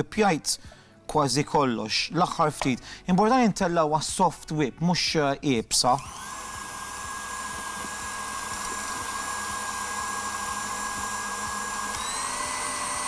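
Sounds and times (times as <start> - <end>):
electric mixer whining: 6.0 - 13.0.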